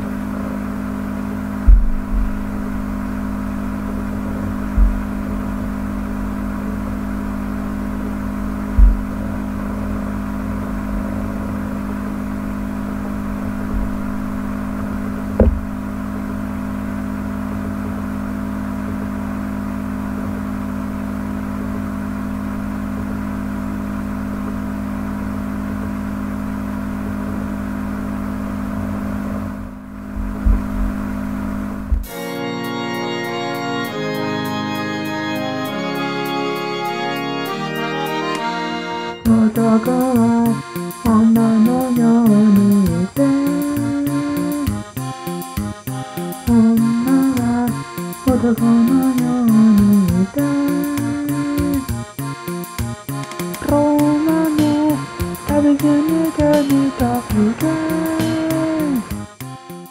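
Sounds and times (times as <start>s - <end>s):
mechanical hum: 0.0s - 59.9s
short dull thumps: 1.6s - 3.0s, 4.4s - 6.3s, 8.6s - 9.4s, 13.2s - 14.2s, 15.3s - 16.0s, 29.6s - 32.1s.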